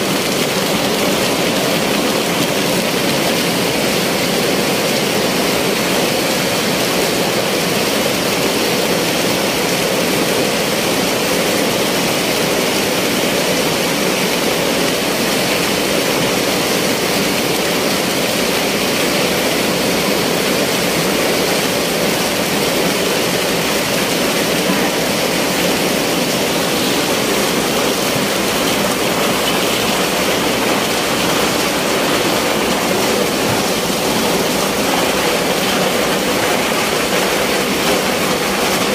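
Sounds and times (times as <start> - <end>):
ice machine running: 11.0 - 38.9.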